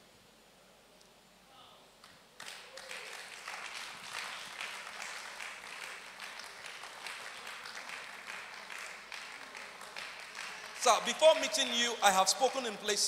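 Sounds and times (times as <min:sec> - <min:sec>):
audience applauding: 0:02.4 - 0:12.8.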